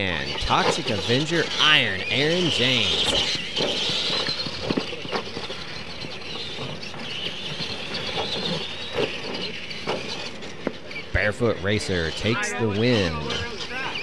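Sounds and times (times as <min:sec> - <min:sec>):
electric toy truck motor whine: 0:02.4 - 0:11.0.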